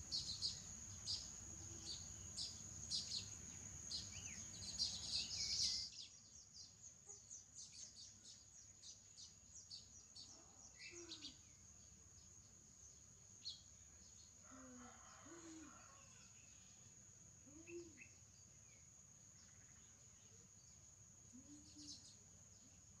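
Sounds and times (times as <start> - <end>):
birds chirping: 0.0 - 11.6.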